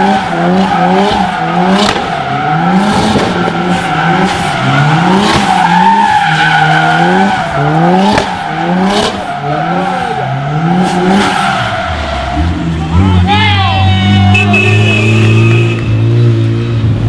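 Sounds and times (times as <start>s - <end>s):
car engine revving: 0.0s - 17.0s
sharp cracks: 1.8s - 2.2s.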